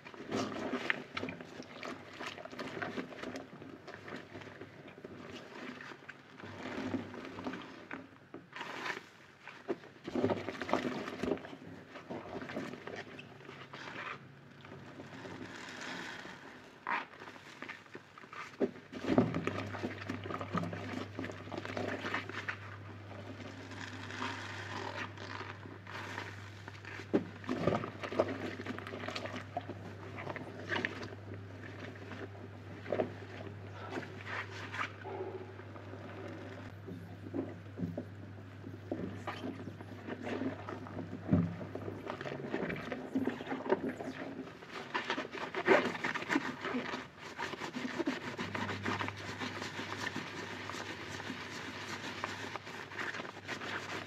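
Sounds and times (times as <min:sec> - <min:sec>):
wet sponge squelching: 0:14.8 - 0:54.0
low steady hum: 0:18.2 - 0:54.0.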